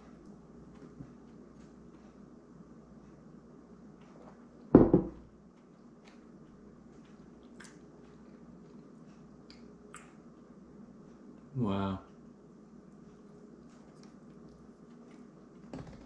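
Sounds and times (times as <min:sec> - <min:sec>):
faint chewing: 0:00.0 - 0:04.7, 0:05.3 - 0:11.5, 0:12.7 - 0:15.7.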